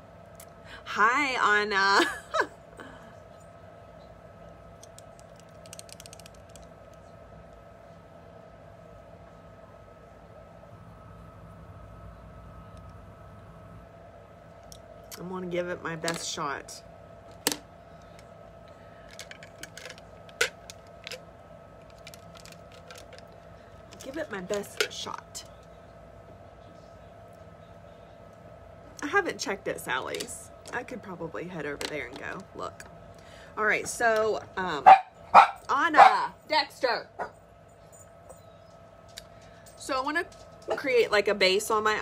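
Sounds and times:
steady faint hum: 0.0 - 42.0
small objects clicking and tapping: 4.8 - 7.0, 19.1 - 21.2, 21.8 - 25.6.

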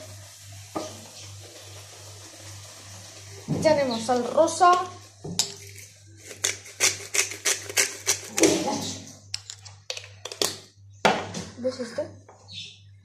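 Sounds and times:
salt clicking and crunching: 5.5 - 8.6.

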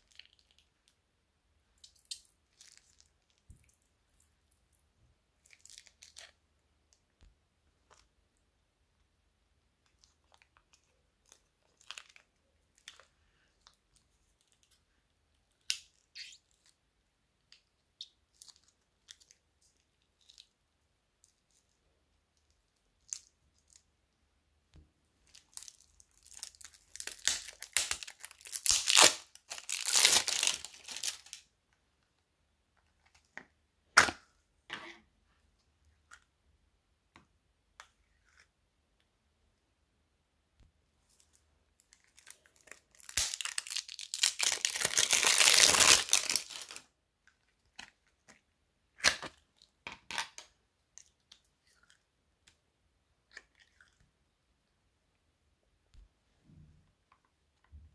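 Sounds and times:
plastic bag crinkling: 25.5 - 31.4, 42.2 - 46.8
plastic bag crumpled crackling: 26.3 - 31.4, 42.6 - 46.8.

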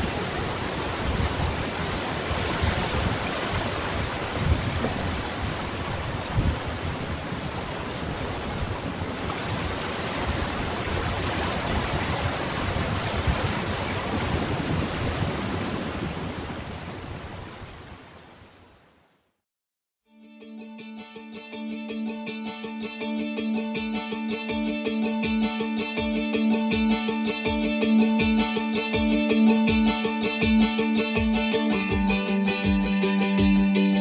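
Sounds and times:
ocean surf breaking: 0.0 - 18.7
low thuds of waves: 0.0 - 18.8.

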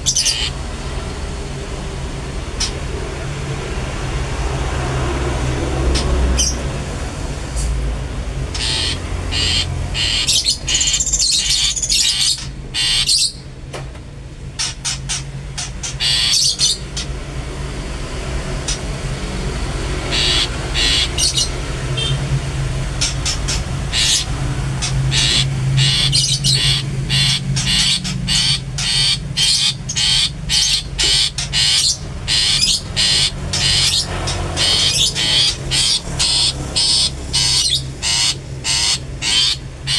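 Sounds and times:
bird singing sharp repeated calls: 0.0 - 1.6, 5.9 - 6.7, 8.4 - 13.5, 14.6 - 17.1, 18.6 - 39.9.

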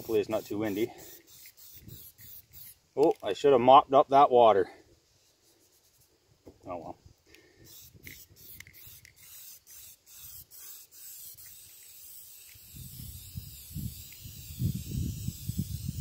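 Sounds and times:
spray paint can hissing: 0.0 - 2.8, 7.6 - 16.0
wind buffeting microphone: 12.7 - 16.0.

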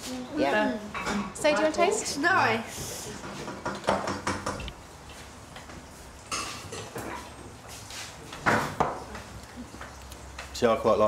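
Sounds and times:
glasses and kitchenware clinking: 6.3 - 7.2.

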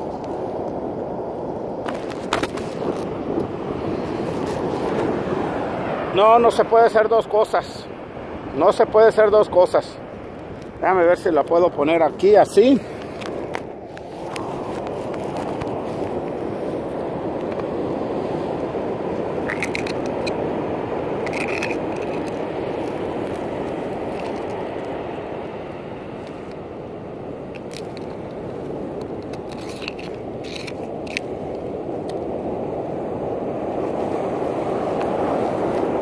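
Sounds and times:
ocean surf rushing: 0.0 - 36.0
knife scraping mussel shells: 19.4 - 20.4, 21.2 - 24.6, 29.2 - 31.6.

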